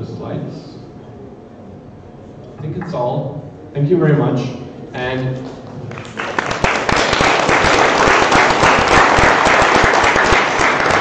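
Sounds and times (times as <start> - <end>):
audience applauding: 5.9 - 11.0.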